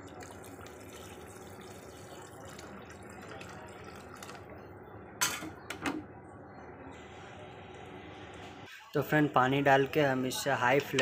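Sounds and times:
water pouring into pot: 0.0 - 4.5.

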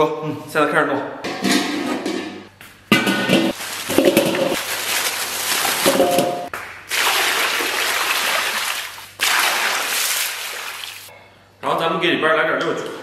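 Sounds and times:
metal bowls clanking: 1.3 - 4.6, 5.8 - 6.5
water pouring and splashing: 3.5 - 11.1.

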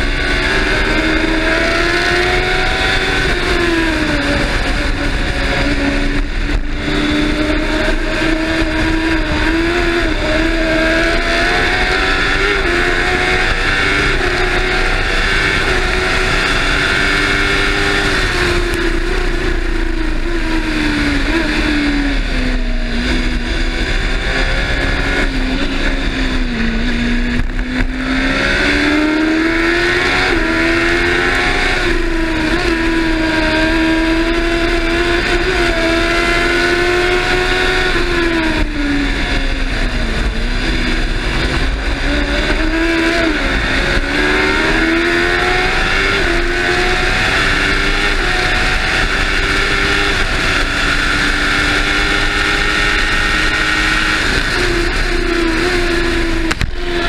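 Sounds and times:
racing engine: 0.0 - 57.0.

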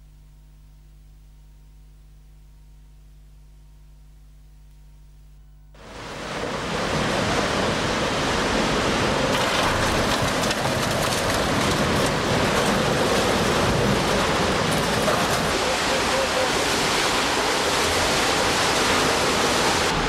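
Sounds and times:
steady rushing noise: 5.8 - 20.0.

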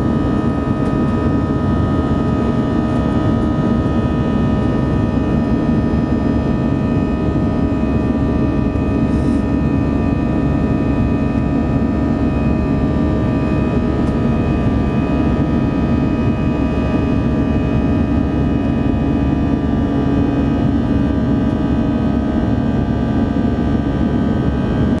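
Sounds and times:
steady whining tones: 0.0 - 24.2
jet engine and airflow rush: 0.0 - 25.0.

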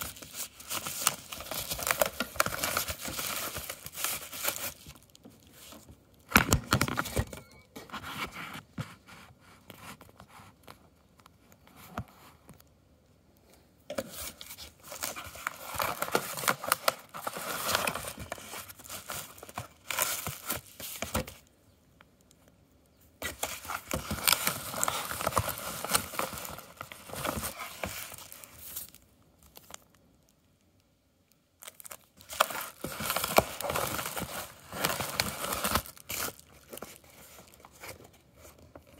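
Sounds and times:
paper mailer rustling and tearing: 23.2 - 28.9.

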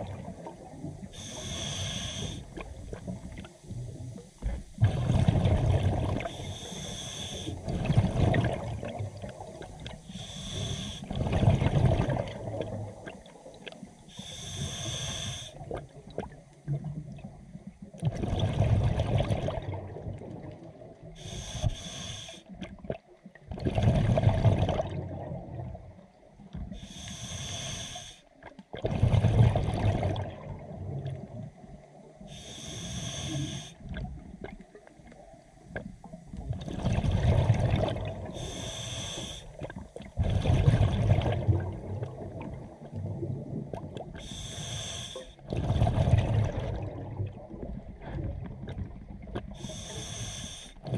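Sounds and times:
diver regulator breath hiss: 1.0 - 2.6, 6.2 - 7.7, 10.0 - 11.3, 14.0 - 15.7, 21.2 - 22.5, 26.7 - 28.3, 32.2 - 33.8, 38.3 - 39.7, 44.2 - 45.4, 49.6 - 50.8
exhaled bubbles rushing: 4.7 - 6.4, 7.5 - 10.0, 11.1 - 13.6, 18.0 - 20.9, 22.6 - 25.8, 28.7 - 31.4, 36.3 - 38.4, 39.6 - 44.2, 45.4 - 49.6.

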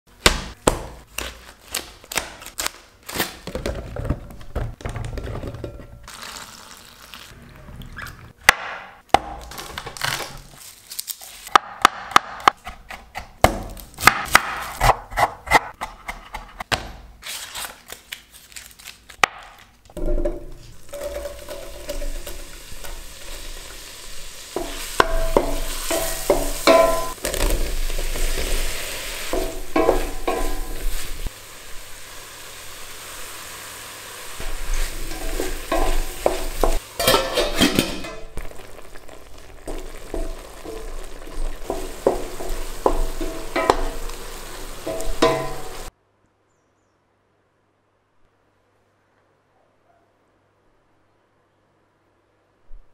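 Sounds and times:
knife slitting plastic film: 1.1 - 3.5, 9.4 - 11.6, 17.2 - 19.7
mushrooms sizzling in a pan: 20.0 - 45.9.

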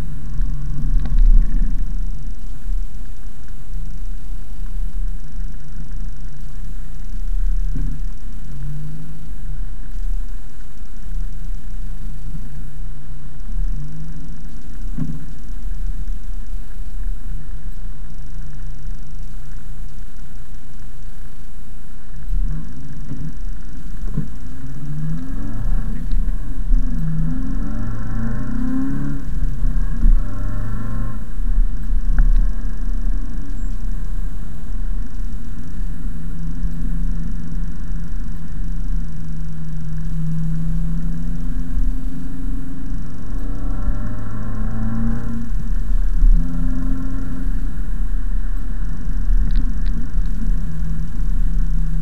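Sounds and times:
car engine drone: 0.0 - 52.0
road rumble inside car: 0.0 - 52.0.

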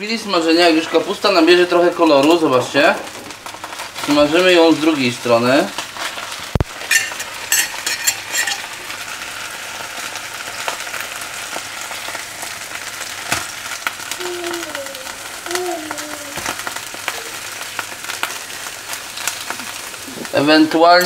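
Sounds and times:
cabbage sizzling in frying pan: 0.0 - 21.0
forks clicking against pan: 6.9 - 8.7.

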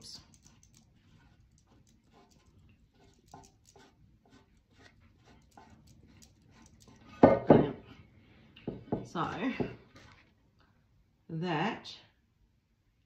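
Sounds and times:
cardboard dabbing and scraping paint: 0.0 - 7.3.

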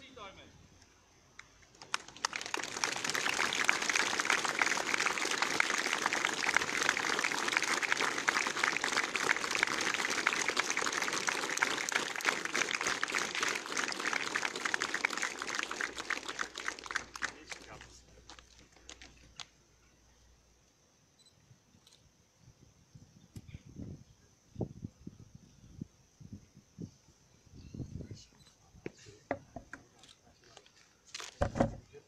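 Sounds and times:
crowd applauding: 1.6 - 19.2.

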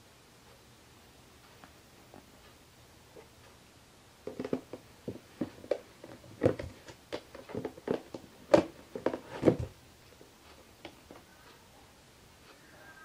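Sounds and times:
plastic cases knocking and scraping: 4.2 - 9.8.

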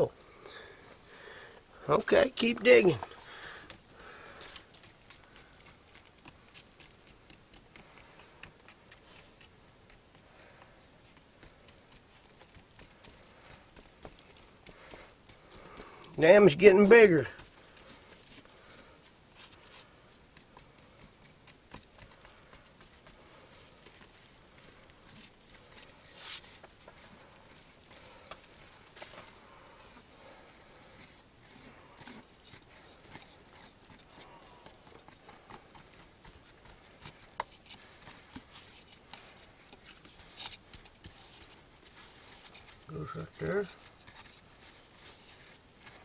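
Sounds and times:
knife scraping dirt: 24.8 - 46.0.

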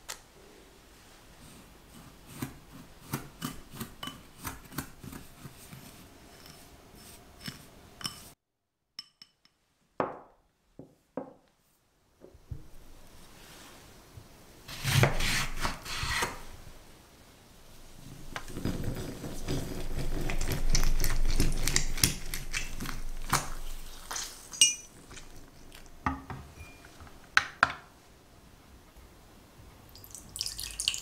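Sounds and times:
glass clinks and taps: 9.0 - 10.2, 24.6 - 24.9.

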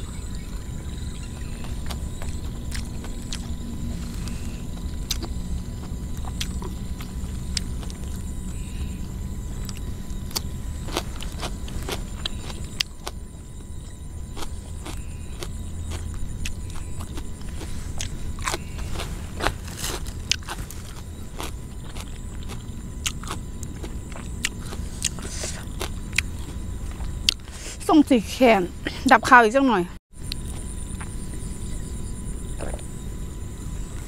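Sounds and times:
low rumble: 0.0 - 27.5
high chirring: 0.0 - 34.0
chewing and lip smacks: 1.1 - 3.6, 4.3 - 13.2, 14.4 - 19.1, 20.2 - 27.5.

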